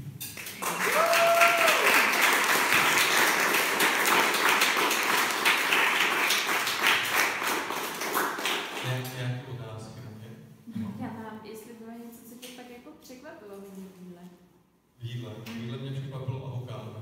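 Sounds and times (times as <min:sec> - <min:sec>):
audience applause: 0:00.4 - 0:09.0
person whooping: 0:00.7 - 0:02.2.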